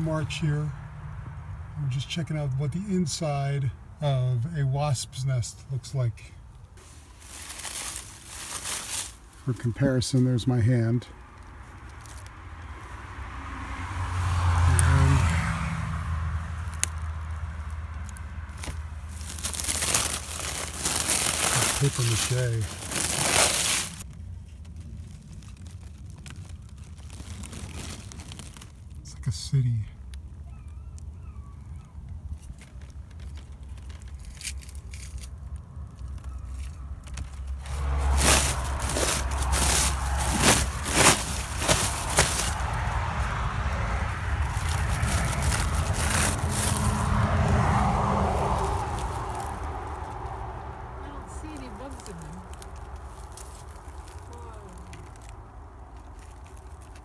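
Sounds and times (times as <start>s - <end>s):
passing vehicle engine hum: 0.0s - 4.4s, 9.0s - 57.0s
papery crackling and rustling: 6.8s - 12.8s, 16.4s - 29.0s, 30.1s - 57.0s
low rumble: 32.8s - 56.9s.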